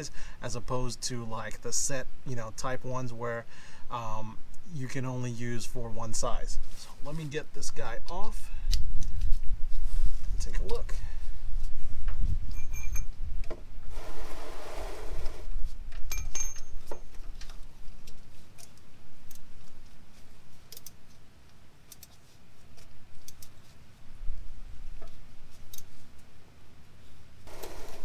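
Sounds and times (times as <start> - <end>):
scraping rustle: 13.8 - 15.8
metal wrench clinking on filter: 16.1 - 16.9.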